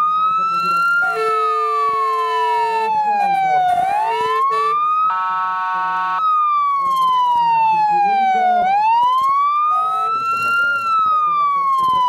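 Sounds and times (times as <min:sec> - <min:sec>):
fire engine siren wailing: 0:00.0 - 0:12.0
horn-like tone: 0:01.0 - 0:02.9, 0:03.8 - 0:06.2, 0:09.8 - 0:10.2.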